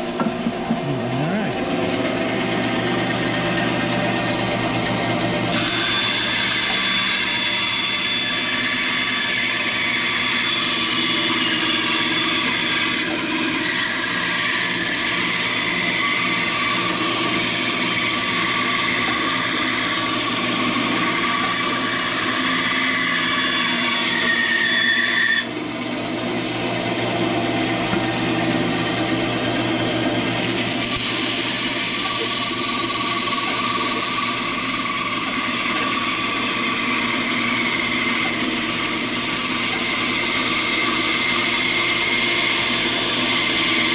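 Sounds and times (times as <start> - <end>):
motor hum: 0.0 - 8.3, 25.4 - 43.9
band saw cutting wood: 0.0 - 43.9.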